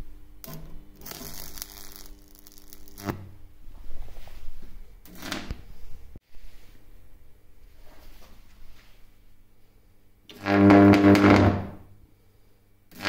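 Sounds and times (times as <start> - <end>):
mains hum: 0.0 - 13.0
high-voltage arc buzzing: 0.4 - 3.4, 5.0 - 5.6, 10.3 - 11.9.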